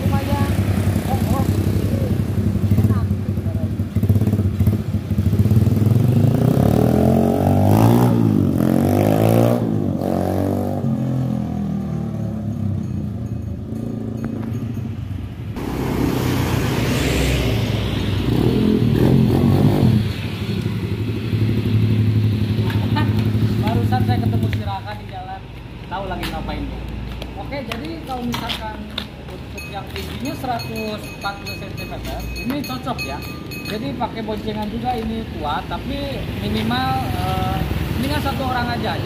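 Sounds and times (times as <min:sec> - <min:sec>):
motorbike engine revving: 0:00.0 - 0:12.5, 0:15.6 - 0:24.7.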